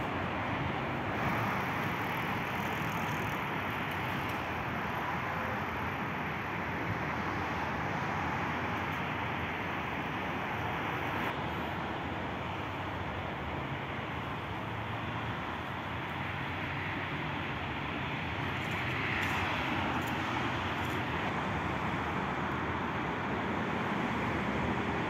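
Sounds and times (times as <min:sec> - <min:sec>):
traffic noise: 0:00.0 - 0:25.0.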